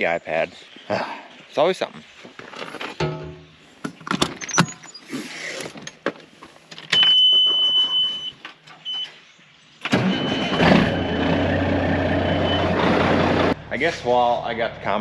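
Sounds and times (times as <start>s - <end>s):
diesel engine starting and idling: 9.8s - 13.8s.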